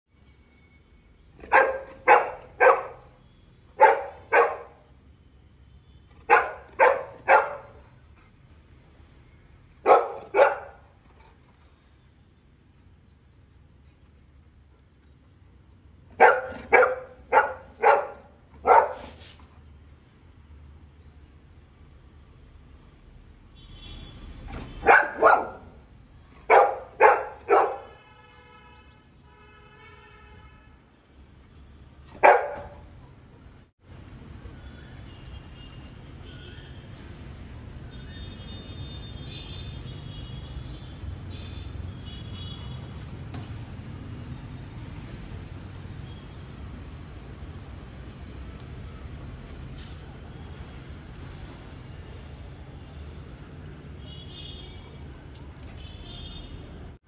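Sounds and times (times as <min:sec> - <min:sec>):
dog barking: 0:01.4 - 0:03.1, 0:03.8 - 0:04.9, 0:06.2 - 0:07.9, 0:09.8 - 0:10.9, 0:16.2 - 0:19.2, 0:24.8 - 0:25.8, 0:26.4 - 0:28.0, 0:32.1 - 0:33.0.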